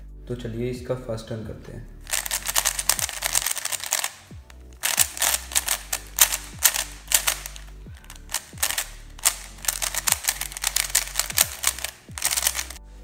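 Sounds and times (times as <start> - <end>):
speed cube clicking: 2.1 - 12.8.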